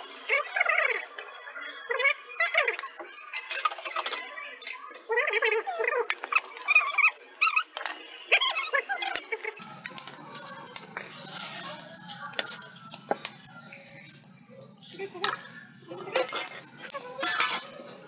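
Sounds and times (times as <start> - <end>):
faint voices: 0.0 - 18.0
wood fire crackling: 5.2 - 18.0.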